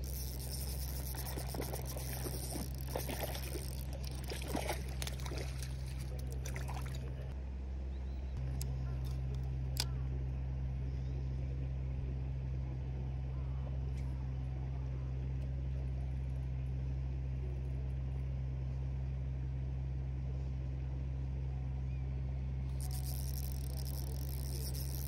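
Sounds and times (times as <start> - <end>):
water dripping: 0.0 - 7.2
water splashing and trickling: 0.0 - 7.4
low mechanical hum: 0.0 - 25.0.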